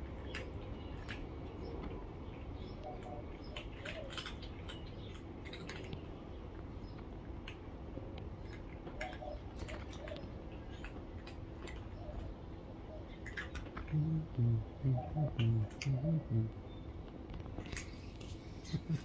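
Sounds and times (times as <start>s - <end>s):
outdoor background: 0.0s - 19.0s
cat crunching dry kibble: 3.6s - 6.2s, 13.2s - 13.9s
faint bird calls: 11.7s - 17.0s.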